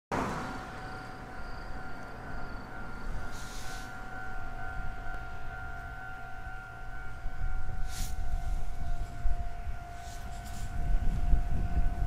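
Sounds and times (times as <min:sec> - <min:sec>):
distant steam whistle: 0:00.2 - 0:12.0
steam hiss: 0:03.0 - 0:04.3, 0:07.8 - 0:08.8.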